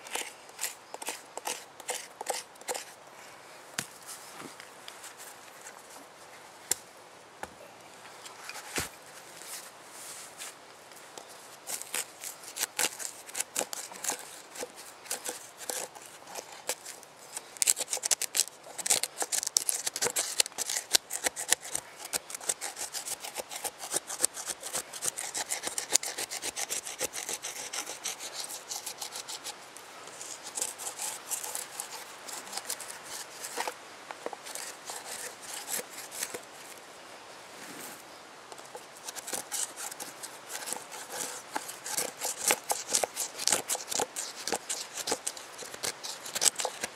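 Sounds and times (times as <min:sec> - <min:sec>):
stick scraping charred wood: 0:00.0 - 0:03.0, 0:11.2 - 0:36.8, 0:38.5 - 0:46.9.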